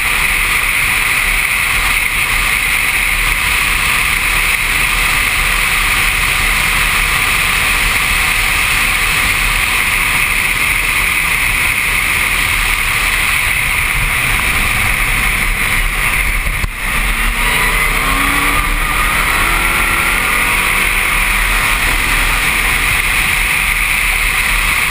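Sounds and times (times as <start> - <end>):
wind rush: 1.5 - 24.9
race car engine accelerating: 11.8 - 24.9.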